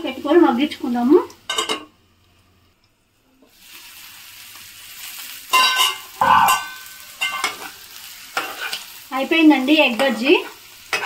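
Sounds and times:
egg and onion sizzling: 0:00.0 - 0:11.0
spatula scraping pan: 0:05.6 - 0:09.0.

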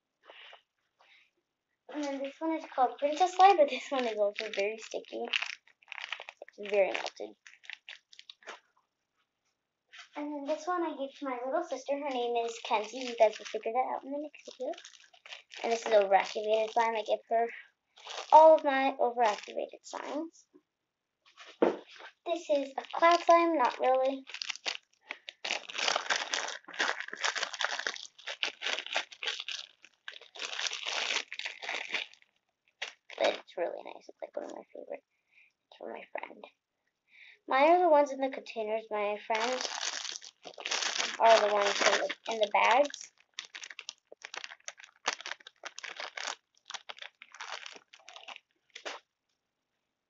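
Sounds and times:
plastic bag crinkling: 0:02.0 - 0:08.6, 0:11.4 - 0:17.4, 0:18.0 - 0:20.2, 0:21.9 - 0:33.4, 0:39.3 - 0:49.0.

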